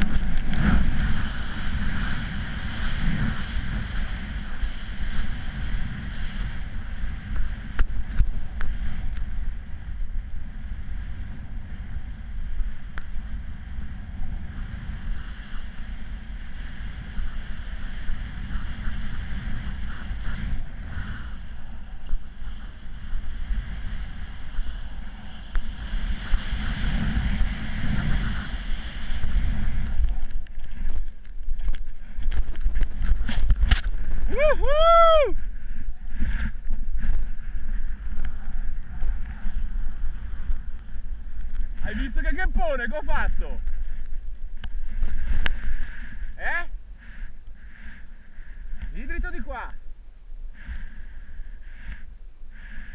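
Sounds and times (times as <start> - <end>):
wind buffeting microphone: 0.0 - 52.9
snow hissing under snowboard: 22.3 - 30.0.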